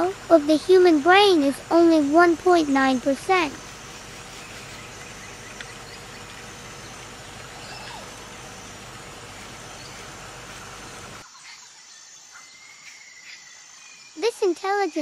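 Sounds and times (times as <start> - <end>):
low hum: 0.0 - 11.2.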